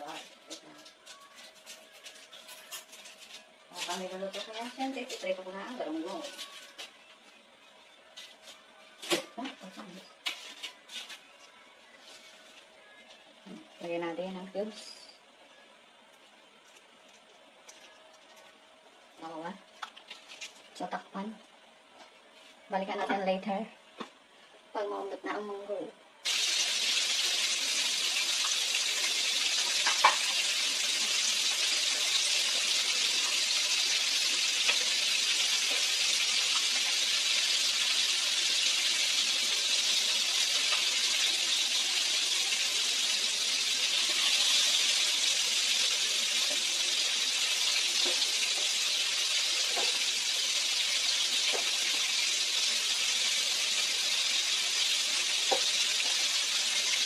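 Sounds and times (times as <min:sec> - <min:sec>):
stew boiling hard: 0:26.2 - 0:57.0.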